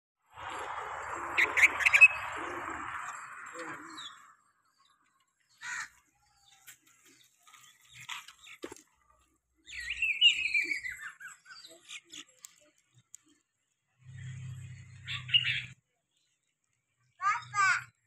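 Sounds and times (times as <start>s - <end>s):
steady rushing noise: 0.2s - 4.6s
bird chirping: 1.0s - 13.4s, 14.0s - 16.5s.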